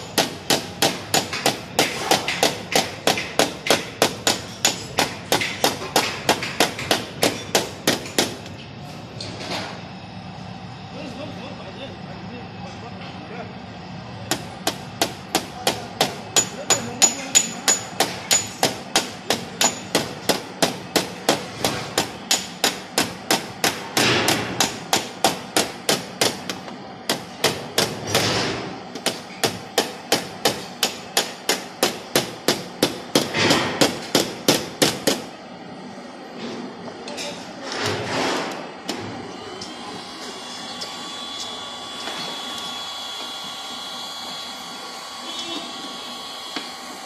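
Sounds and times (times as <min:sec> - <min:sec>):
hammer tapping metal tool: 0:14.3 - 0:20.4.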